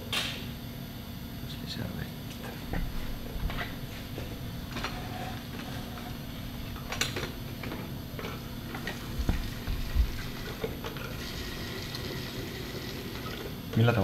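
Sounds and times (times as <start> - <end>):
steady low hum: 0.0 - 14.0
dull thumps: 9.1 - 10.3.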